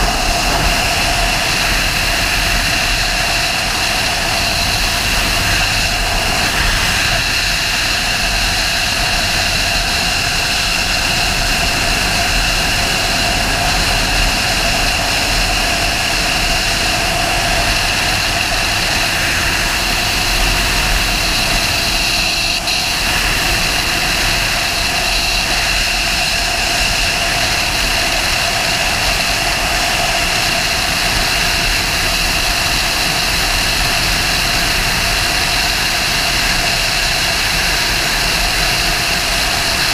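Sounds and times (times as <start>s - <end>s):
motorcycle engine cruising: 0.0s - 8.2s
wind rush on microphone: 0.0s - 39.9s.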